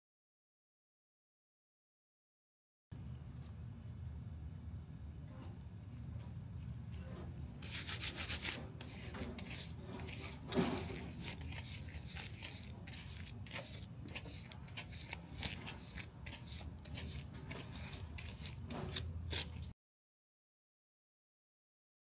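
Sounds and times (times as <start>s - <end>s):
gloved hands rubbing wet tape: 7.6s - 19.7s.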